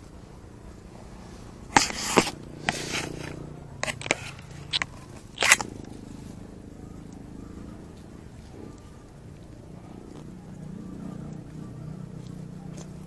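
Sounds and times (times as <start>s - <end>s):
rustling and crackling: 0.0s - 6.5s.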